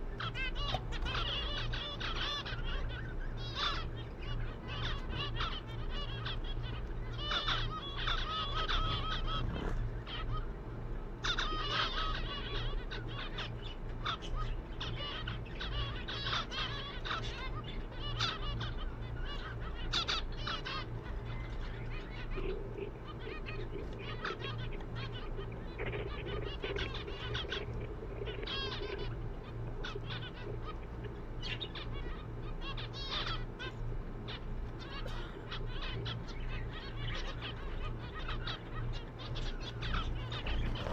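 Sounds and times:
finches chirping: 0.0s - 40.9s
steady low hum: 0.0s - 40.9s.

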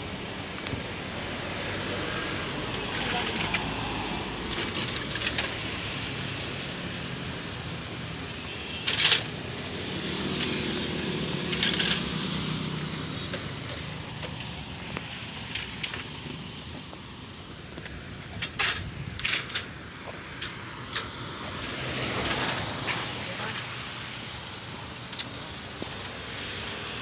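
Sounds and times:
road traffic: 0.0s - 27.0s.

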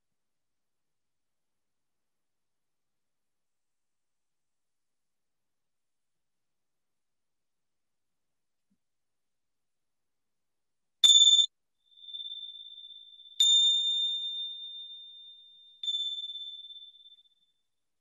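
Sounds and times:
small meditation bell ringing: 11.0s - 17.6s.

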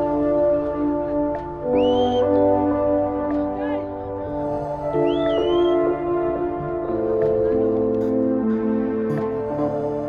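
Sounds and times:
soft ambient music: 0.0s - 10.0s.

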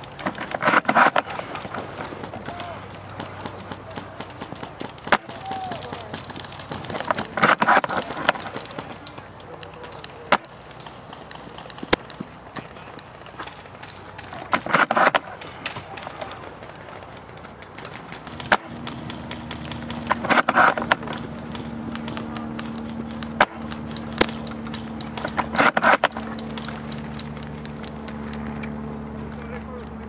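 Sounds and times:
low hum: 0.0s - 30.0s
airsoft rifle shots: 0.2s - 28.8s.

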